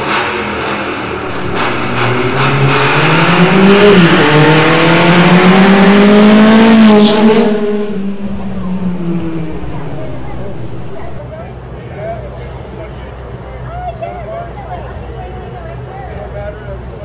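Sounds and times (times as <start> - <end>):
car engine accelerating hard: 0.0 - 11.2.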